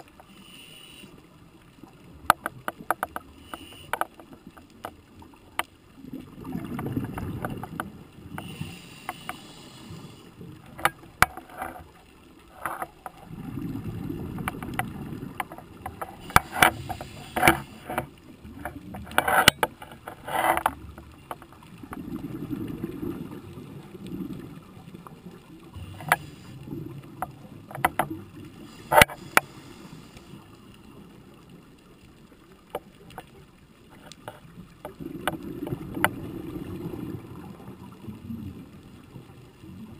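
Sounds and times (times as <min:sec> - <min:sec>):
regulator inhalation hiss: 0:00.3 - 0:01.2, 0:08.4 - 0:10.3, 0:28.6 - 0:30.4
exhaled bubbles rumbling underwater: 0:05.1 - 0:08.8, 0:13.1 - 0:19.2, 0:20.6 - 0:33.5, 0:34.5 - 0:39.9.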